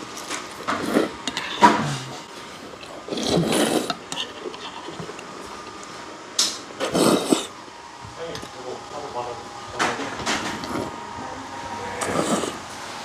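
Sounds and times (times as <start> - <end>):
slurping noodles: 0.7 - 5.2, 6.8 - 7.6, 12.0 - 12.7.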